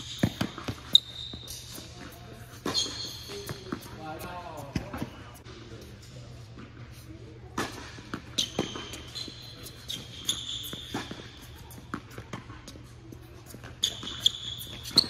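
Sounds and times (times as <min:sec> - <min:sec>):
shoes squeaking on court: 0:00.0 - 0:15.0
tennis ball struck and bouncing: 0:00.1 - 0:00.9.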